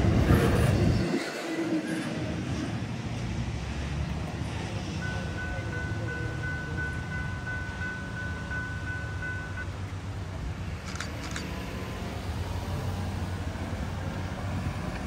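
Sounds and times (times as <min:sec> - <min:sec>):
electronic crossing bell ringing: 0:05.0 - 0:09.7.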